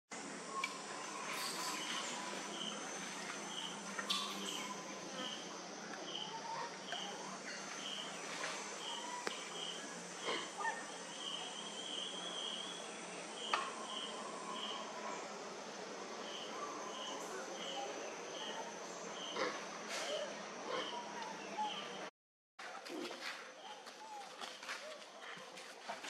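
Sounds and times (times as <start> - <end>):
high insect hiss: 0.2 - 20.8
insect chirping: 0.4 - 22.0.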